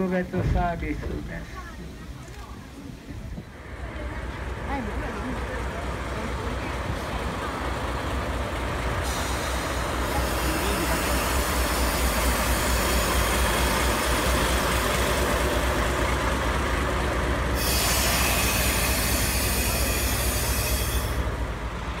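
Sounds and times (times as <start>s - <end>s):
diesel locomotive engine idling: 0.0s - 22.0s
loud air hiss: 9.0s - 14.0s, 17.5s - 21.3s.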